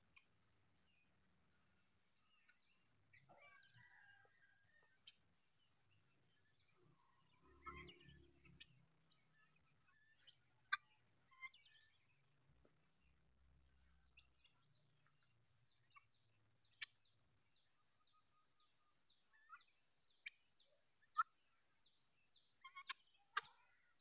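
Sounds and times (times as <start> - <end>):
guineafowl chirping calls: 6.5 - 12.2, 14.1 - 24.0.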